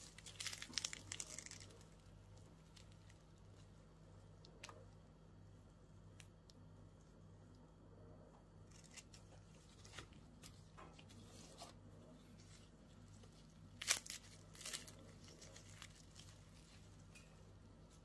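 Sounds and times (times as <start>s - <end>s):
pastry crunching and tearing: 0.0s - 3.8s, 8.6s - 18.0s
steady low hum: 0.0s - 18.0s.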